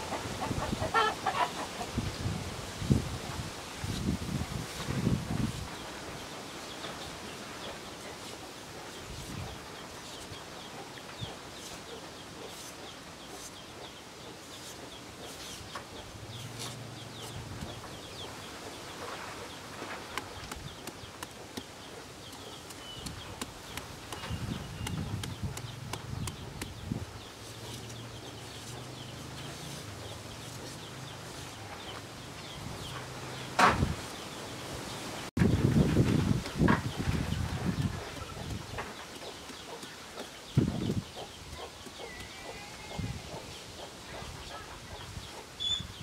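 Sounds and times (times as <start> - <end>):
knife chopping papaya: 22.3 - 26.8.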